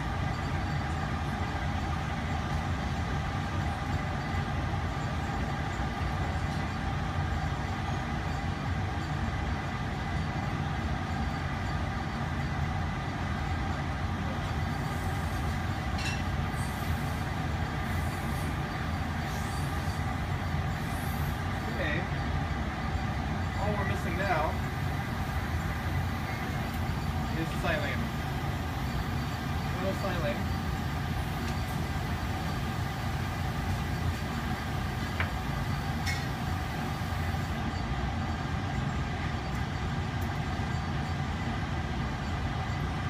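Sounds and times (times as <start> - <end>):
fume hood exhaust airflow: 0.0 - 43.0
faint high hissing: 16.5 - 20.2, 20.8 - 21.9.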